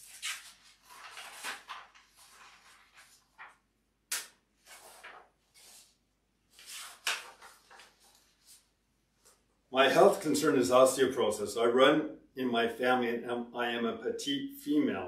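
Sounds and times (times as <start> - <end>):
paper rustling and shuffling: 0.0 - 9.5
sharp paper snap: 4.1 - 4.4.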